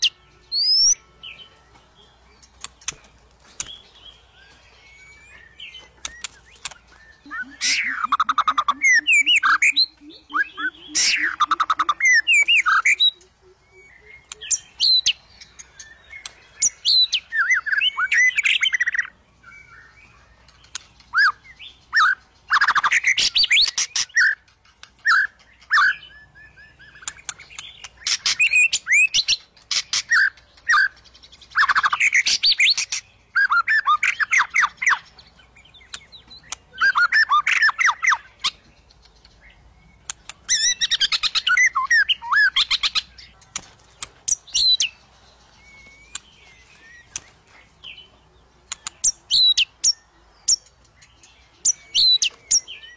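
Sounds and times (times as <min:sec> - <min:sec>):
bird singing whistles and chatter: 0:00.0 - 0:48.1, 0:48.7 - 0:52.9.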